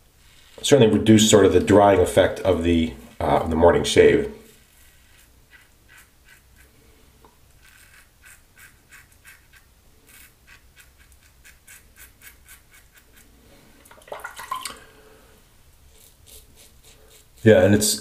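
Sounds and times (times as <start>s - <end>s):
razor cutting stubble: 4.8s - 6.8s, 7.6s - 13.3s, 15.9s - 18.0s.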